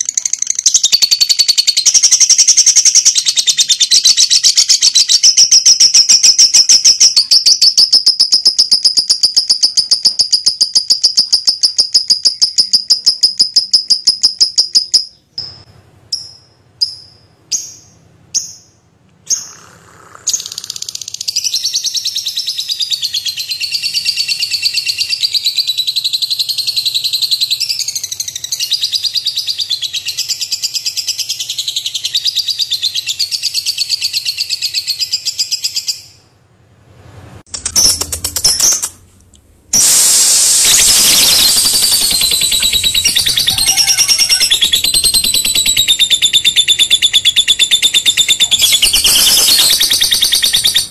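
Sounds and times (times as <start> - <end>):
lovebirds chattering trill: 39.8 - 50.9
short bird chirps: 39.8 - 50.9.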